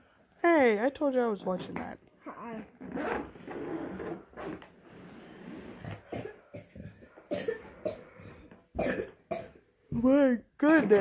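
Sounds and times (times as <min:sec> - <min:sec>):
zipper being tugged: 0:01.6 - 0:06.0.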